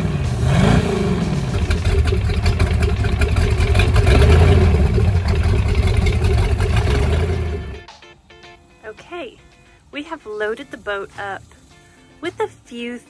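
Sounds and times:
boat engine running: 0.0s - 7.9s.

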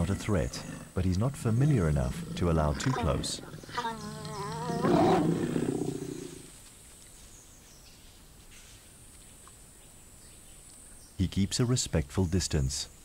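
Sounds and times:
lion growling: 0.0s - 6.5s.

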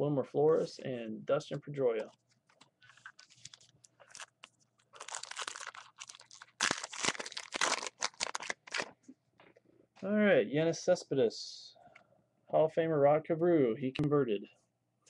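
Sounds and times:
wrapper tearing and crinkling: 2.9s - 9.0s.

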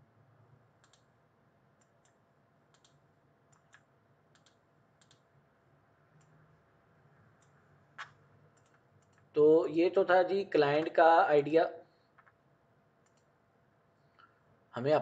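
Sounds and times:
faint computer mouse clicks: 0.8s - 1.1s, 1.8s - 5.2s, 7.4s - 9.3s, 13.0s - 13.3s.

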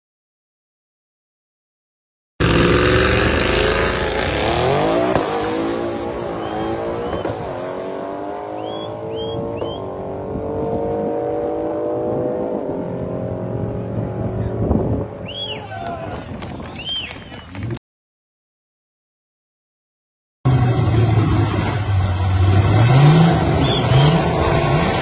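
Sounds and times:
car engine accelerating: 2.4s - 15.2s, 20.5s - 25.0s.

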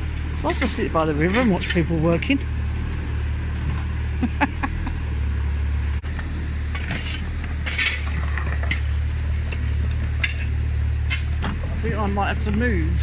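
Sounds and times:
diesel engine running: 0.0s - 13.0s
metal bucket scraping stones: 6.7s - 11.4s.

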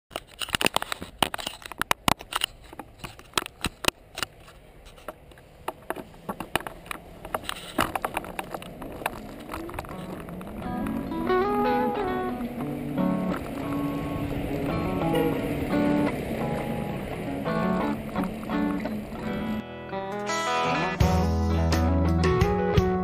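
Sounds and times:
wheel clicks and knocks: 0.1s - 19.6s
low rumble of rolling: 1.6s - 19.7s
music: 10.7s - 23.0s.

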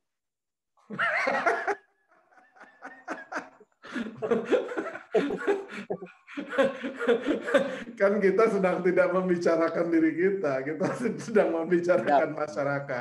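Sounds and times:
men laughing: 0.9s - 8.9s, 10.7s - 12.4s.

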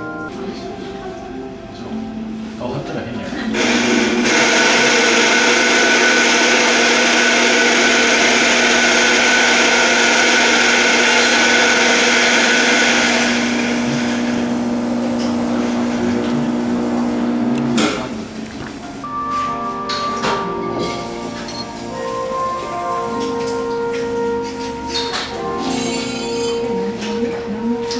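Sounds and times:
steady hum: 0.0s - 19.2s.

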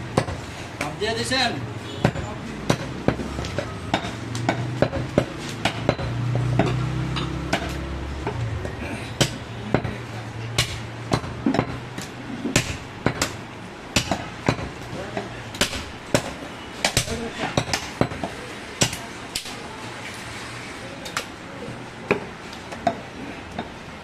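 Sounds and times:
cleaver chopping meat and bone: 2.0s - 10.0s, 10.6s - 19.5s.

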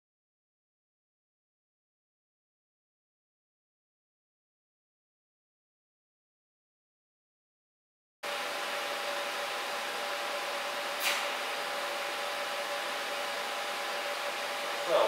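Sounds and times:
extractor fan running: 8.2s - 15.0s.

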